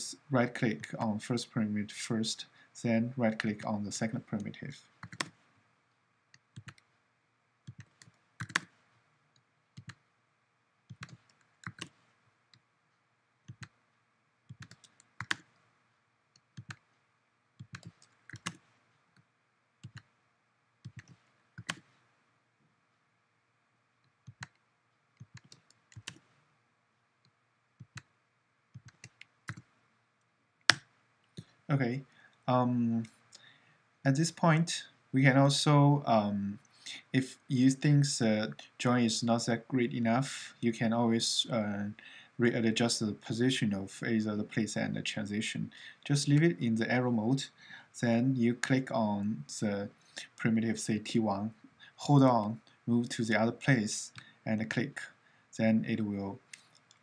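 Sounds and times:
mouse and keyboard clicking: 7.7s - 8.8s, 10.9s - 12.0s, 17.6s - 18.6s, 28.8s - 29.7s.

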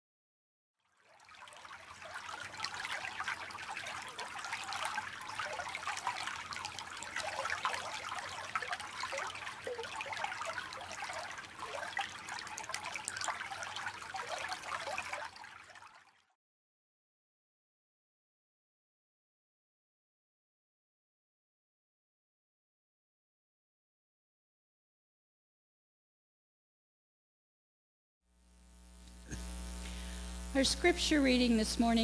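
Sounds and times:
creek trickling and babbling: 0.8s - 16.3s.

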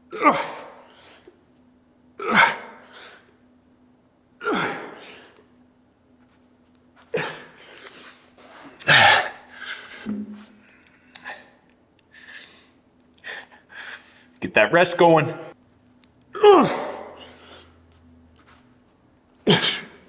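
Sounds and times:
man grunting with effort: 0.0s - 0.8s, 2.2s - 2.8s, 4.4s - 5.2s, 8.8s - 9.4s, 16.4s - 17.4s.

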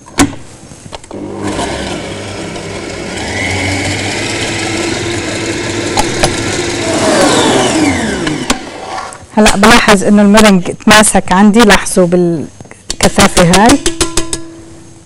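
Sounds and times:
stand mixer whisking: 1.2s - 8.6s.

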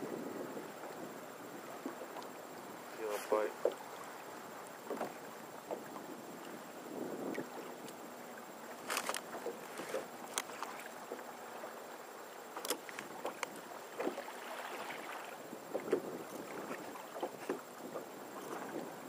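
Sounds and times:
water lapping against plastic hull: 0.7s - 19.0s.

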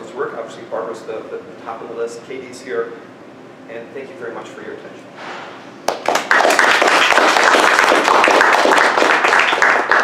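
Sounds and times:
audience applauding: 5.9s - 10.0s.

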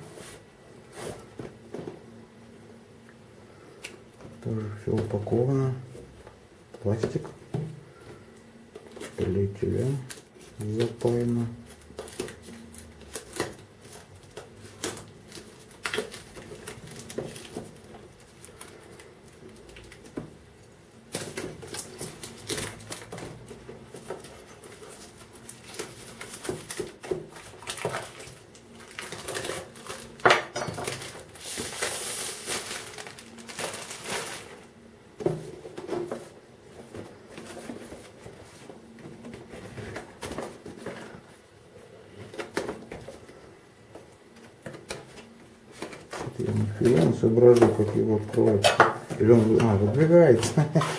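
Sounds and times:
plastic film crinkling: 8.8s - 34.8s.

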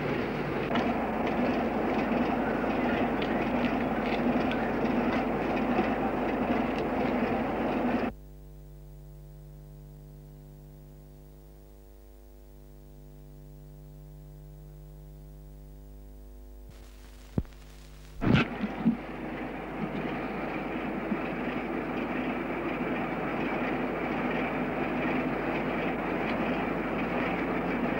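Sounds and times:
steady rumbling noise: 0.0s - 8.1s, 16.7s - 27.9s
steady low hum: 0.0s - 27.9s.

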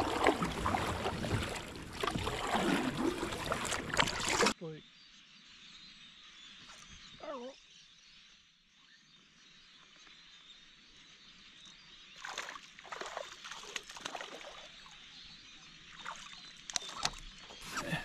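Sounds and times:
fish splashing at surface: 0.0s - 4.6s.

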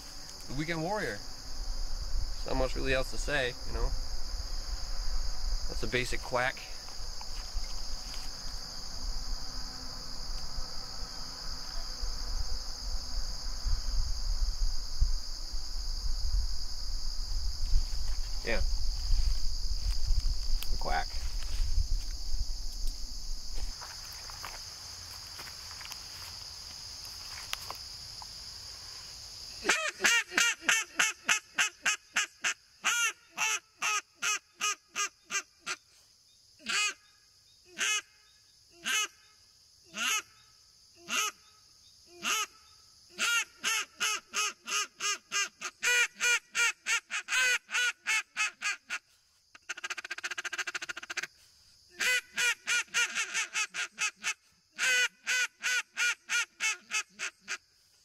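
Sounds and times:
insects hissing: 0.0s - 58.0s
duck call quacks: 29.6s - 35.8s, 36.6s - 37.0s, 37.8s - 38.1s, 38.8s - 39.2s, 40.0s - 40.3s, 41.1s - 41.4s, 42.2s - 42.5s, 43.2s - 49.0s, 49.6s - 51.3s, 52.0s - 57.6s.

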